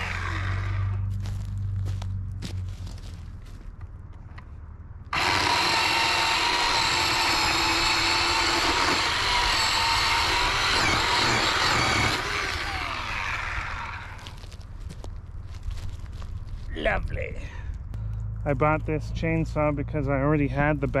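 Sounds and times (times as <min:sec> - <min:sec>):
electric chainsaw cutting log: 0:00.0 - 0:01.1, 0:05.1 - 0:14.5.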